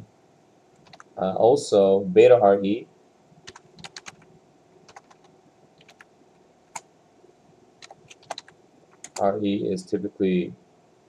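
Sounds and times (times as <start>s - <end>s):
keyboard keystrokes clicking: 0.8s - 1.1s, 3.5s - 4.2s, 4.9s - 5.2s, 5.8s - 6.1s, 7.8s - 9.3s.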